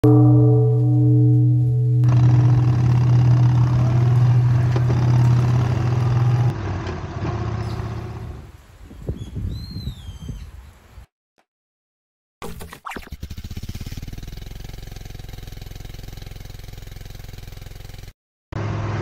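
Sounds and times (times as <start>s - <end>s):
temple bell ringing: 0.0s - 6.5s
motorcycle engine running: 0.3s - 6.7s, 13.3s - 18.8s
wind and tyre noise: 4.8s - 11.1s.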